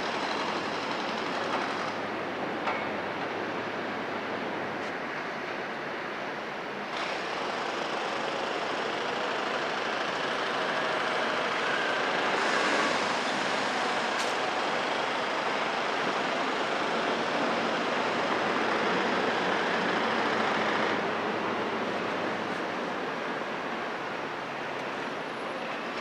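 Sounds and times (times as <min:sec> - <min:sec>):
heavy diesel traffic: 0:00.0 - 0:26.0
dump truck pulling away: 0:08.3 - 0:22.5.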